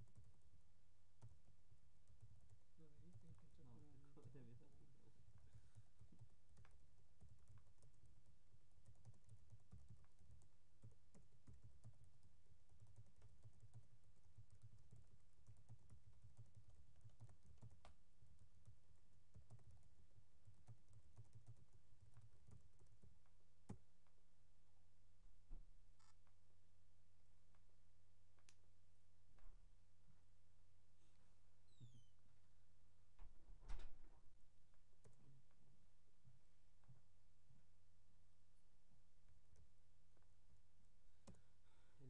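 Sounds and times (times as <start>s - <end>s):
typing on computer keyboard: 0.0s - 0.4s, 1.2s - 3.6s, 5.3s - 23.8s.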